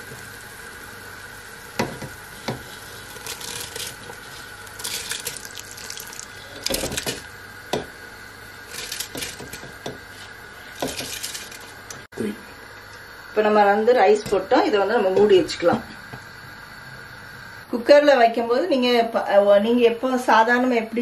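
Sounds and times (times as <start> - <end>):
boiling water hissing: 0.0 - 18.8
rice splashing into water: 3.1 - 7.1.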